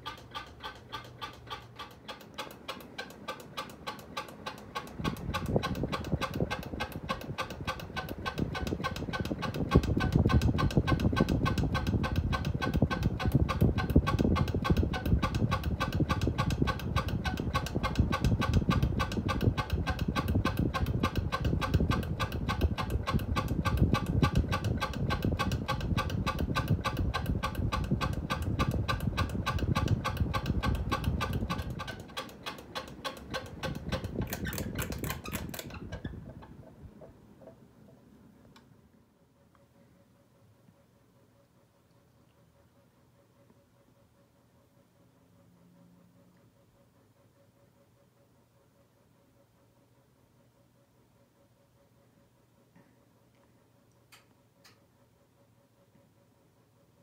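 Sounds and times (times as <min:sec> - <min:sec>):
rapid even ticking: 0:00.0 - 0:37.2
ceiling fan rumble: 0:00.0 - 0:57.0.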